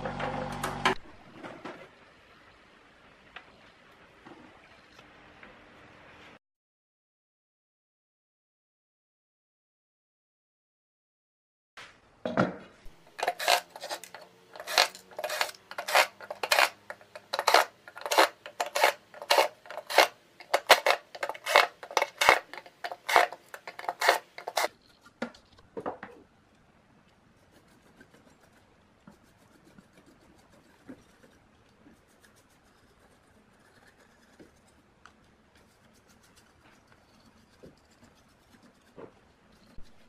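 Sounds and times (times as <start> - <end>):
brush scrubbing circuit board: 13.1 - 25.2, 27.4 - 34.9, 35.6 - 40.0.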